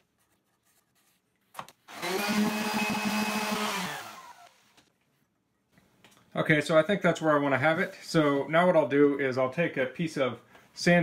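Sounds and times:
orbit sander whining: 1.9 - 4.6.

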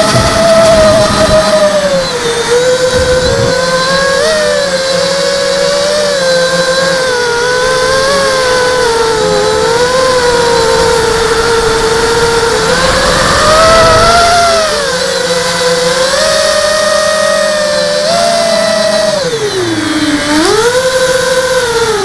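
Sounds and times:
drone propellers whining: 0.0 - 22.0.

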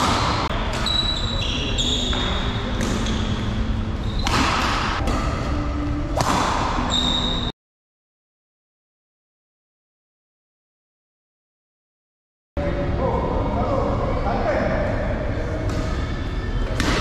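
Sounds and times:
sneakers squeaking on court floor: 0.1 - 5.4, 6.8 - 7.5
rackets striking shuttlecock: 2.1 - 3.4, 4.1 - 6.9, 16.7 - 17.0.

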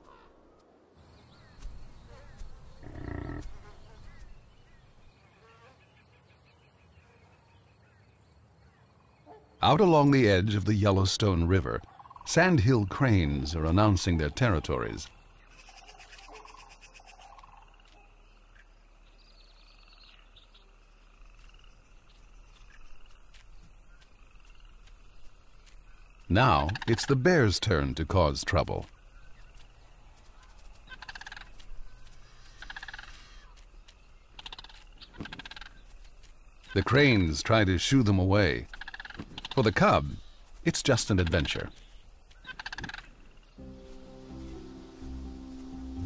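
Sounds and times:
small birds chirping: 0.0 - 46.0
rough animal call: 2.2 - 4.0
cranes calling: 30.2 - 33.7, 41.3 - 46.0.

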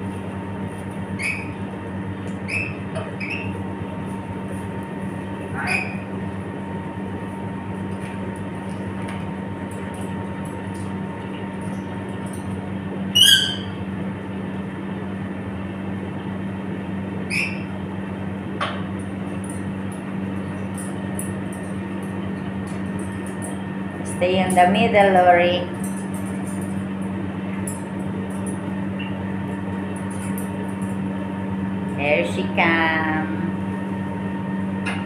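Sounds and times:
steady low hum: 0.0 - 35.0
parrot whistled call: 5.6 - 6.0, 13.1 - 13.8, 17.3 - 17.7
claws and beak clicking on cage: 29.9 - 31.0.

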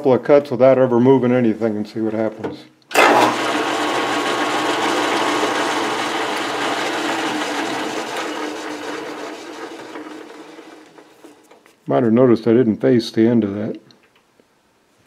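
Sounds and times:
metal lathe running: 2.9 - 11.2.

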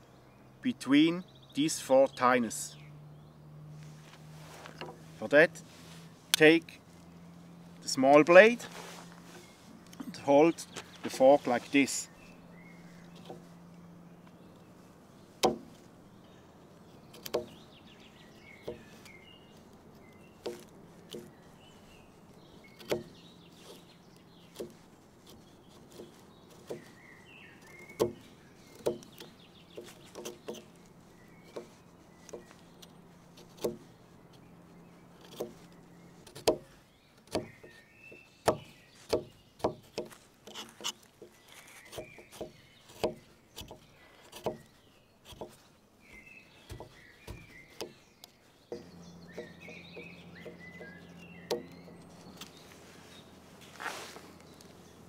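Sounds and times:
birds chirping: 0.0 - 55.0
knife cutting wood clicks: 17.1 - 17.6, 35.2 - 37.6, 38.4 - 45.6.

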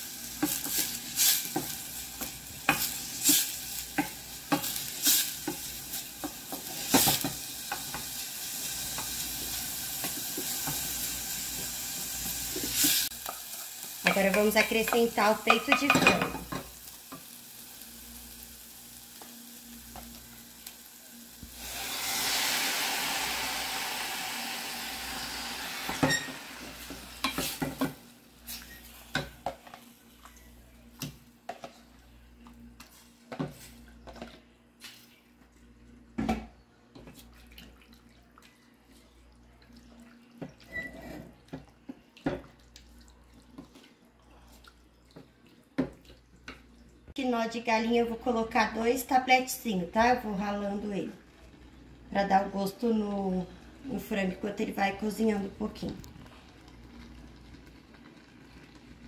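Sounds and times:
chicken sizzling in hot pan: 0.0 - 29.4
garlic and onion sizzling in oil: 0.0 - 31.3, 48.0 - 59.0
spoon knocking and scraping pan: 0.4 - 8.2, 11.5 - 17.3, 25.8 - 28.0.

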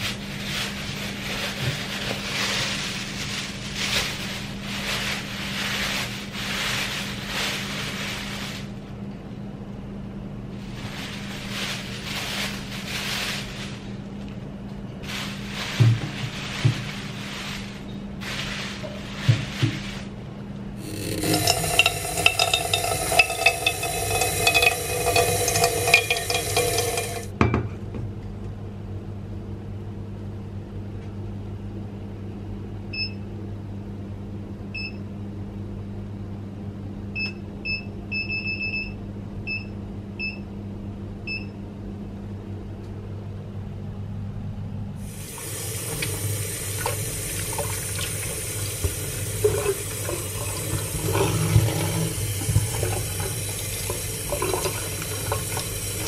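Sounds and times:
rubbing vegetable under water: 20.8 - 27.3, 45.0 - 56.0
tap running into steel sink: 45.5 - 56.0.

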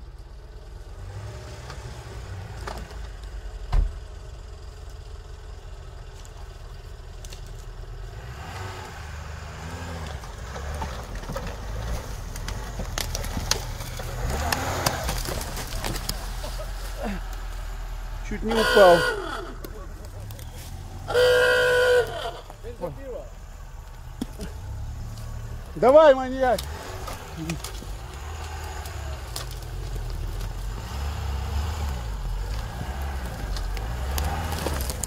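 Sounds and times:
car engine revving: 0.7 - 4.5, 7.7 - 35.0
rustling and crunching: 10.0 - 18.4, 19.5 - 21.1, 23.7 - 35.0.

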